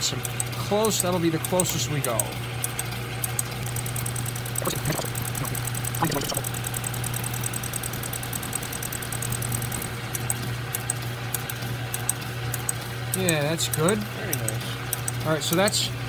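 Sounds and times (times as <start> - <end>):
fast light ticking of cutter: 0.0 - 15.9.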